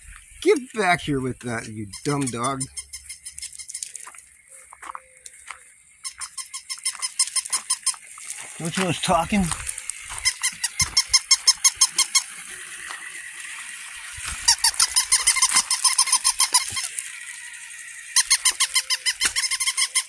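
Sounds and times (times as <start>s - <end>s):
toy puppy squeaky yips: 1.9s - 4.0s, 6.0s - 8.0s, 10.2s - 12.3s, 14.4s - 17.0s, 18.2s - 20.0s.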